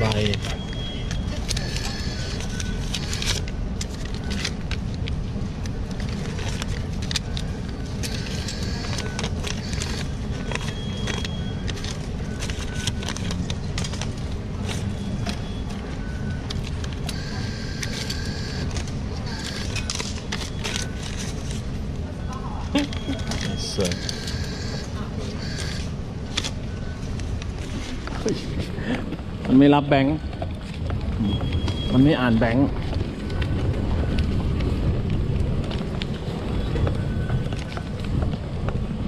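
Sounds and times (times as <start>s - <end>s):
traffic rumble: 0.0s - 39.0s
paper banknote rustling: 1.4s - 21.9s
brief steady tones: 17.1s - 19.9s, 22.9s - 25.9s.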